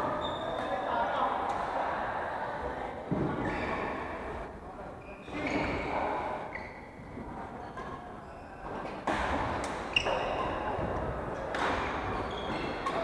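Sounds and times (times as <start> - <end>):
shoes squeaking on wooden floor: 9.9 - 10.6.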